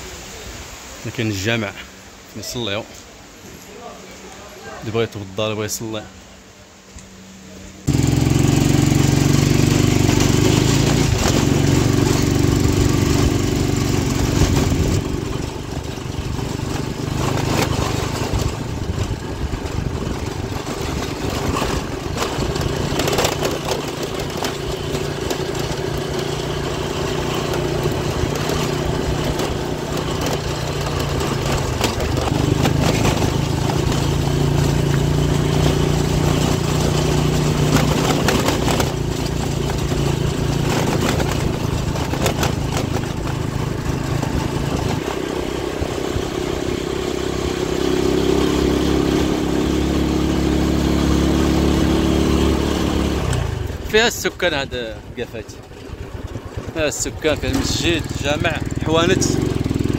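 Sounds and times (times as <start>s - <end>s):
motorcycle engine revving: 7.6s - 59.9s.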